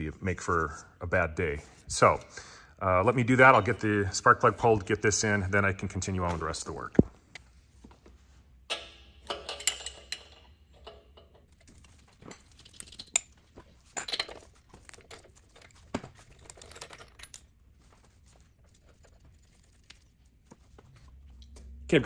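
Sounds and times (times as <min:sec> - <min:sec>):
wrenches clinking on metal: 0:08.7 - 0:20.0.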